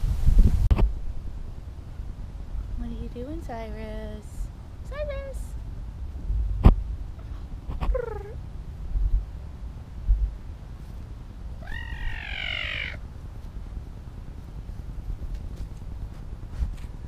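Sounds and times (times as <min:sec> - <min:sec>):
wild cat meowing: 0:11.6 - 0:13.0.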